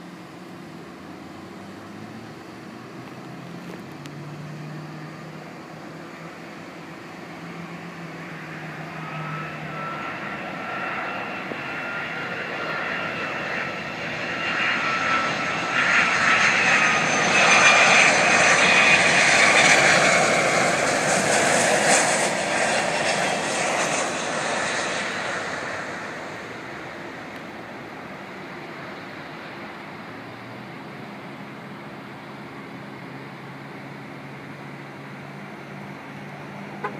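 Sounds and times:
high jet whine: 0:00.0 - 0:36.9
jet engines roaring: 0:00.0 - 0:36.9.

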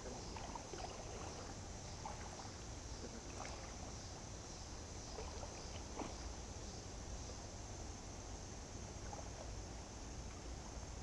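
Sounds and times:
small splashes: 0:00.0 - 0:04.0, 0:05.1 - 0:06.4
quiet water movement: 0:00.0 - 0:11.0.

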